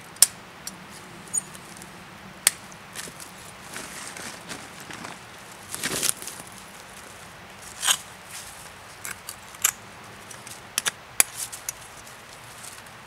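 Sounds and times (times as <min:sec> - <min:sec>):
dry leaves rustling and crunching: 0:02.9 - 0:10.6, 0:11.2 - 0:13.0.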